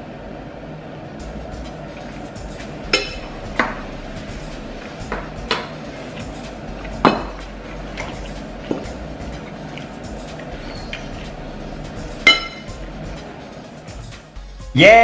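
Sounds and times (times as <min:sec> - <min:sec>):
forks clinking on ceramic: 0:12.3 - 0:12.7.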